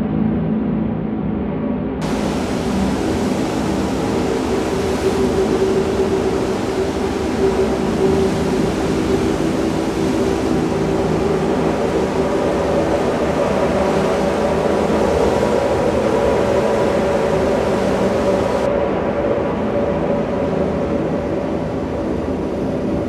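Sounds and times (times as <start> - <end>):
surf breaking on rocks: 2.0 - 18.7
low drone of held notes: 2.0 - 23.0.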